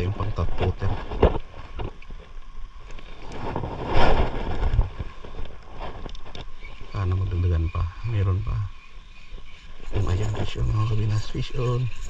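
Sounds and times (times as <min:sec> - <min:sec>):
wind buffeting microphone: 0:03.3 - 0:06.2.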